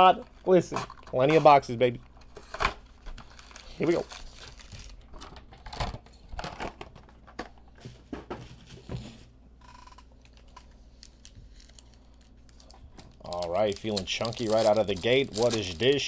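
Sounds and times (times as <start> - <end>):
card packs rustling and crinkling: 2.4 - 5.8, 10.3 - 16.0.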